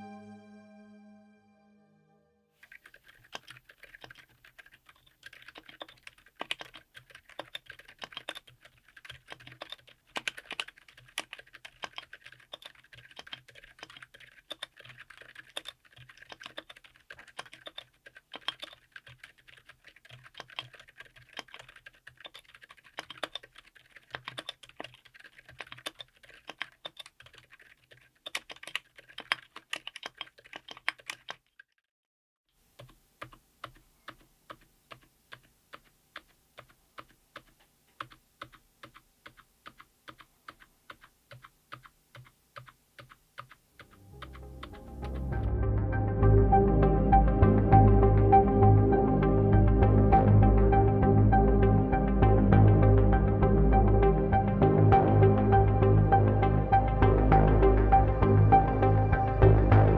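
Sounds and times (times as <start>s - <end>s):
mechanical keyboard keystrokes: 2.7s - 31.5s.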